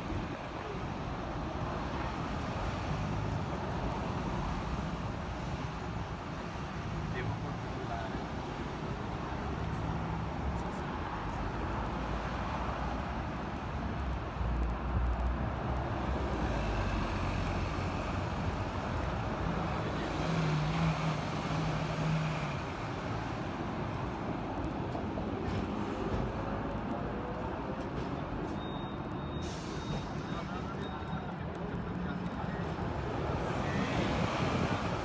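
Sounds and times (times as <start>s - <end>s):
road traffic: 0.0s - 35.0s
tram rumbling: 13.8s - 35.0s.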